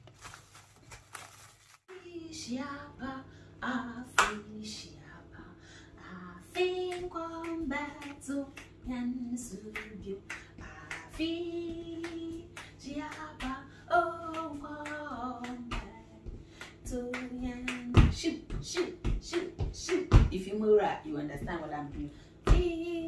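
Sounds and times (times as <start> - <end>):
woman singing unaccompanied: 1.9 - 23.0
sharp hand claps: 4.2 - 4.4, 9.7 - 11.2, 12.0 - 13.6, 14.3 - 15.9, 16.6 - 20.3.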